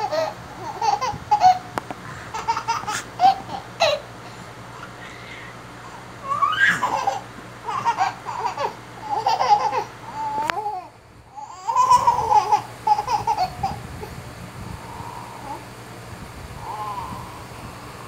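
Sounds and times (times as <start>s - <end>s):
baby laughing and babbling: 0.0s - 14.2s.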